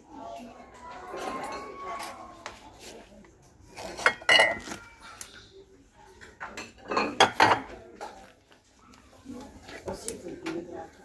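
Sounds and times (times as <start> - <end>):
ceramic tableware clinking: 4.0 - 4.8, 6.3 - 8.2.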